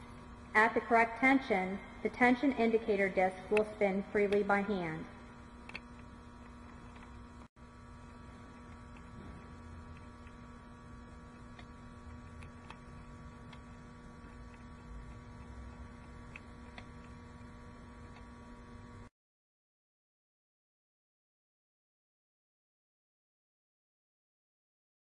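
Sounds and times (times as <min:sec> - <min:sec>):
steady electrical hum: 0:00.0 - 0:19.1.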